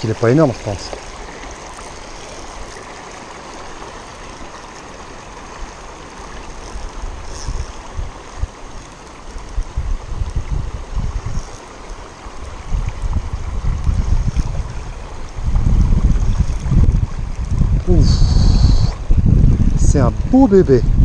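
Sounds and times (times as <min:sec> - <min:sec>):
river water flowing over stones: 0:00.0 - 0:20.7
wind buffeting microphone: 0:06.6 - 0:11.6, 0:12.2 - 0:21.0.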